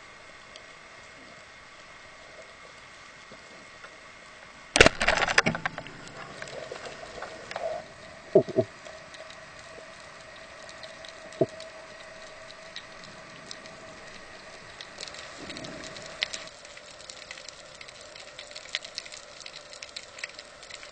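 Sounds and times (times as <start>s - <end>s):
speargun firing crack underwater: 4.8s - 5.8s
small knocks: 8.3s - 8.7s.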